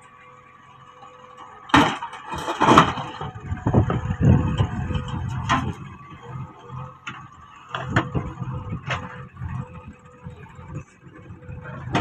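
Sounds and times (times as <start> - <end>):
diesel engines running: 0.0 - 12.0
boulder banging into steel trailer: 1.7 - 5.9
rock rumbling and scraping: 1.8 - 12.0.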